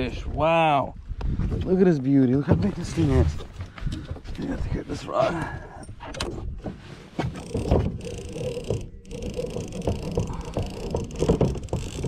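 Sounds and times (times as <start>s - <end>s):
knocks and rustling of gear: 6.6s - 12.0s.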